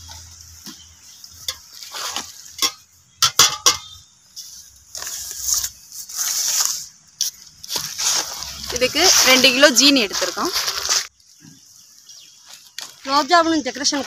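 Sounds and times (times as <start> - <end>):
metal kitchenware clinking: 1.4 - 4.0
sharp metal clanks: 2.6 - 4.0.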